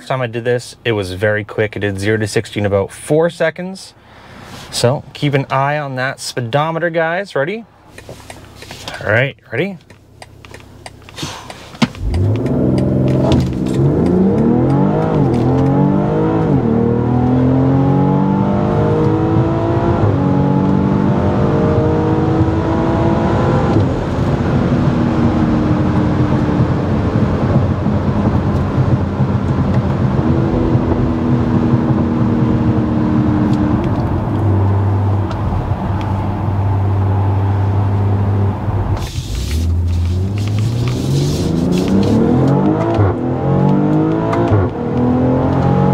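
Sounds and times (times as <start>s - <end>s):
road noise: 0.0s - 45.9s
car engine revving through upshifts: 10.2s - 45.9s.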